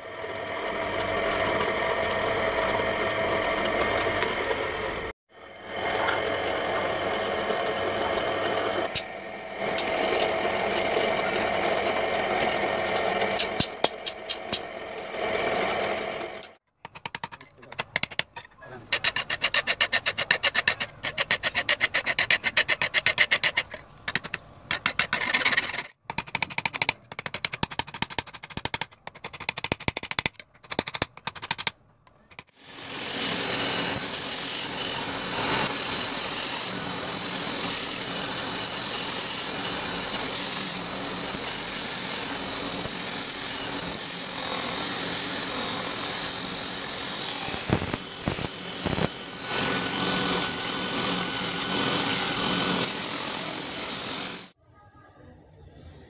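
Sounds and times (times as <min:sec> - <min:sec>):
belt grinder running: 0:00.0 - 0:16.6, 0:32.5 - 0:54.6.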